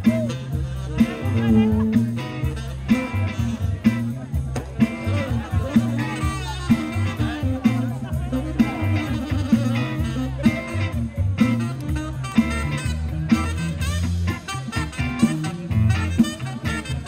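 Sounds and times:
live rock blues band: 0.0 - 17.0.

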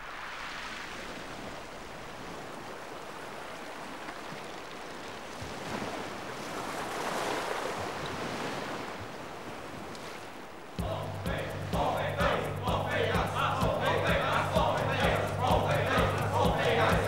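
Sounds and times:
sea waves washing onto shore: 0.0 - 10.8.

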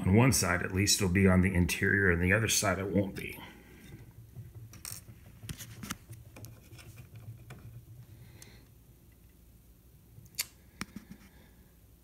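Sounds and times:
small parts clicking and tapping: 3.9 - 9.4.

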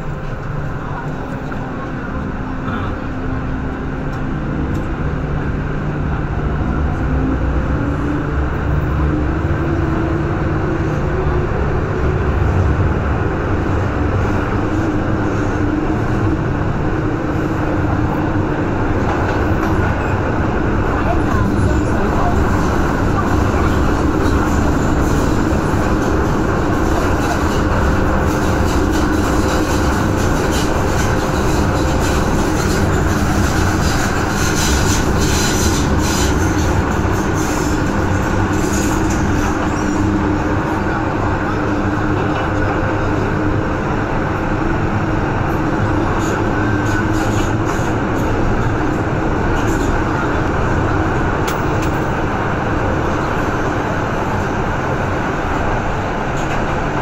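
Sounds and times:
train motor hum: 0.0 - 57.0
train wheels rumbling on track: 0.0 - 57.0.

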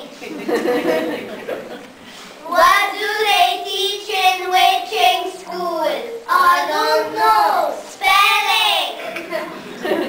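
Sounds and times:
young child sing-song voice: 2.4 - 9.2.

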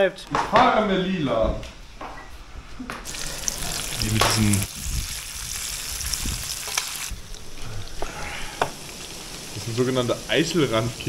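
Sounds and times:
food sizzling in a metal pan: 3.1 - 11.0.

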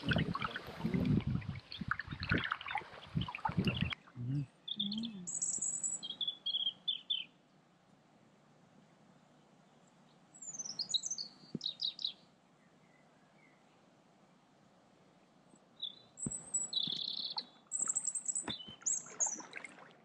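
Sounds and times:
kayak paddle strokes splashing: 0.0 - 4.0, 17.0 - 20.0
small birds chirping: 0.0 - 7.4, 9.7 - 13.9, 15.5 - 19.6.

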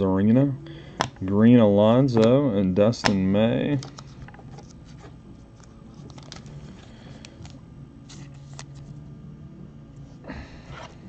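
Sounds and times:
cards sliding and clicking: 3.0 - 8.9.

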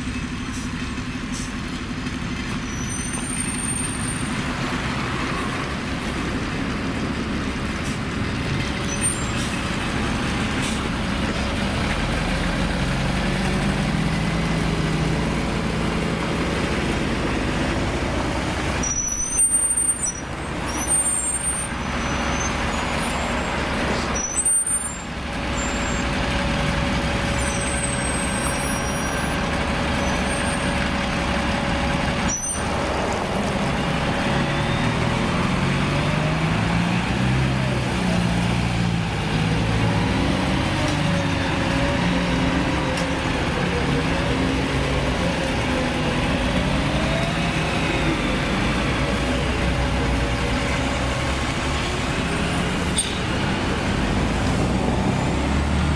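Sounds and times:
buses running in traffic: 0.0 - 55.9.

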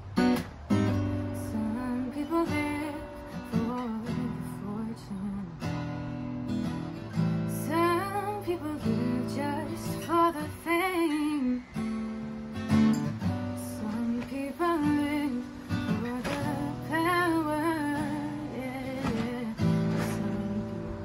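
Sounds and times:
acoustic guitar chords: 0.0 - 21.0
woman singing: 1.2 - 5.8, 7.5 - 12.2, 13.4 - 21.0.

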